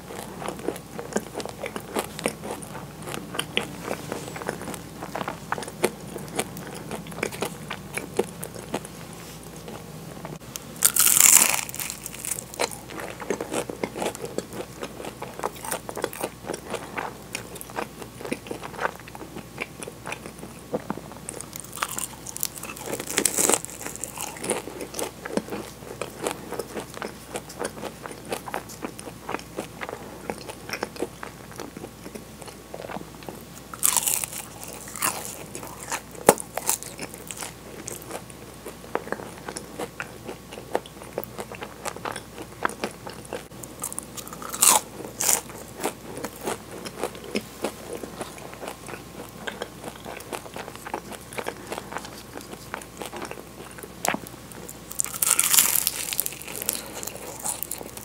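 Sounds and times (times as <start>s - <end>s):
chewing with mouth clicks: 0.1s - 9.9s, 10.8s - 58.0s
crisp pastry bites: 10.6s - 16.7s, 21.4s - 26.9s, 33.8s - 38.2s, 54.8s - 58.0s.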